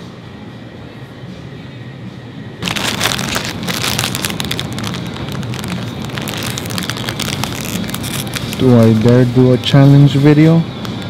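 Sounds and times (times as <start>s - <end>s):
low steady store hum: 0.0s - 11.0s
plastic packet crinkling: 2.6s - 9.1s.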